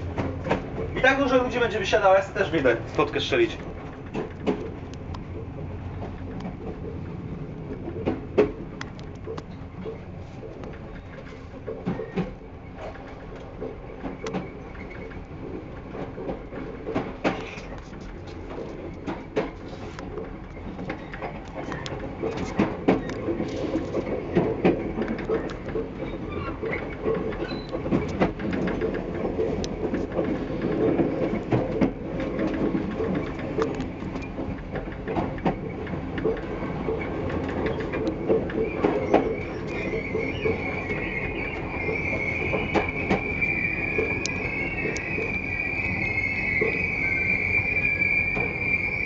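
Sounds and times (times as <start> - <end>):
train wheel clicks and knocks: 0.0 - 45.4
train rumble: 0.0 - 49.0
train wheels squealing: 10.8 - 13.2, 14.0 - 15.2, 17.0 - 49.0.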